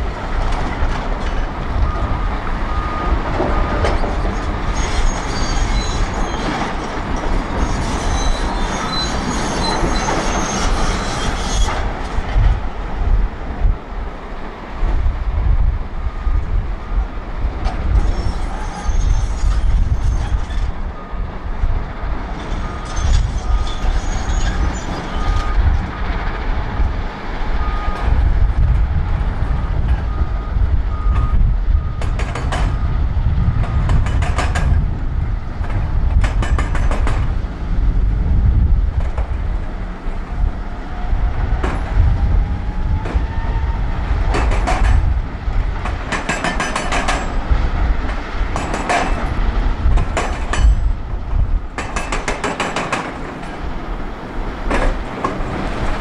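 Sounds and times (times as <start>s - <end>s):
diesel loader engine under load: 0.0s - 7.6s, 20.5s - 56.0s
reversing alarm beeps: 1.8s - 3.7s, 16.0s - 17.1s, 22.5s - 25.7s, 27.6s - 28.1s, 29.6s - 33.9s.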